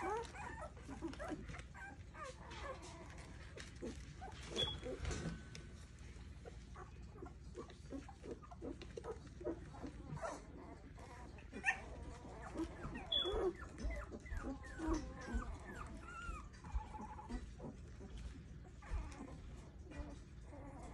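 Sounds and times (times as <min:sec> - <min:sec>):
puppies whimpering and squeaking: 0:00.0 - 0:20.9.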